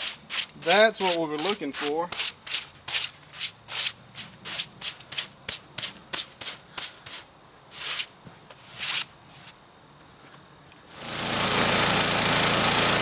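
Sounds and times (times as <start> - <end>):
broom swishing sawdust: 0.0 - 9.6.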